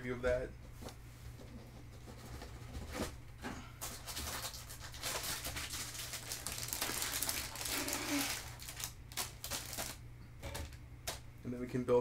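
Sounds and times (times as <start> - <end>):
plastic bag crinkling: 3.8 - 10.0.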